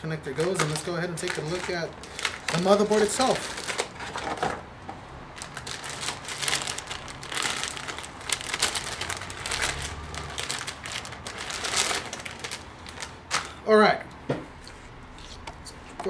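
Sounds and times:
plastic bag crinkling and rustling: 0:00.3 - 0:04.6, 0:05.4 - 0:13.6.

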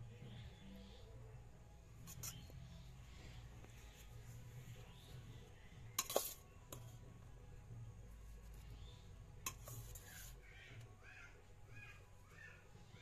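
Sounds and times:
spoon scraping steel bowl: 0:02.0 - 0:02.5, 0:06.0 - 0:06.9, 0:09.4 - 0:10.4.

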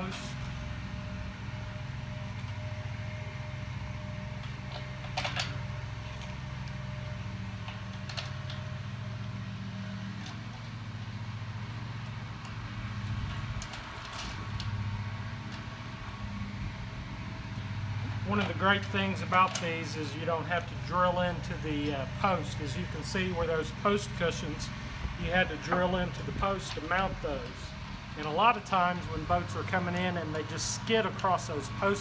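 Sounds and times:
low mechanical hum: 0:00.0 - 0:32.0
bolts and nuts clicking: 0:18.4 - 0:20.0, 0:25.3 - 0:27.6.

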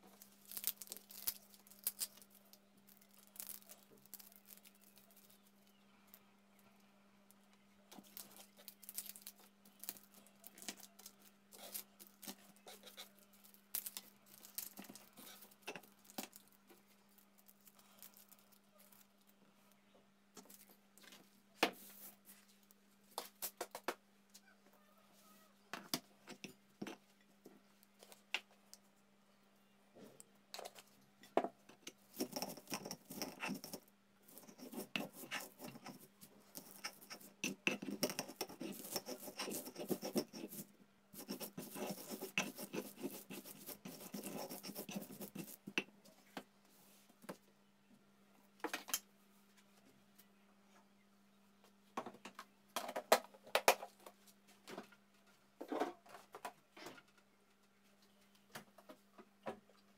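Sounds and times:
stone grinding on stone: 0:32.1 - 0:40.6, 0:41.2 - 0:45.7.

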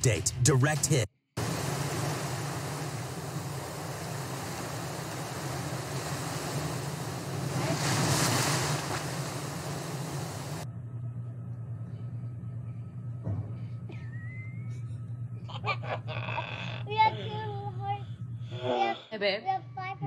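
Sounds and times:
ocean surf churning: 0:01.4 - 0:10.6.

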